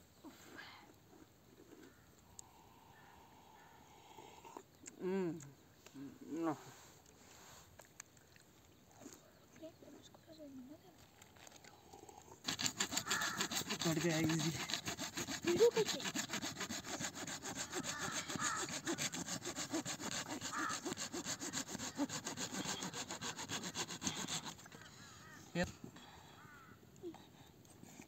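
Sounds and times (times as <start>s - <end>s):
hand saw cutting branch: 12.4s - 24.8s.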